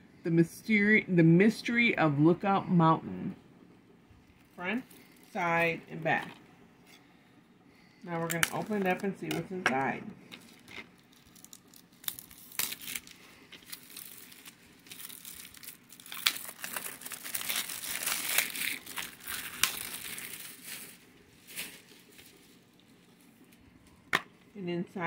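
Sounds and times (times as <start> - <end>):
plastic wrap crinkling and tearing: 10.2 - 24.0.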